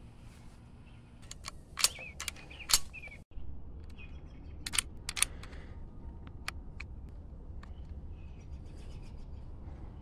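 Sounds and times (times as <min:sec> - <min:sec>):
rifle action clicking: 0:04.6 - 0:05.6.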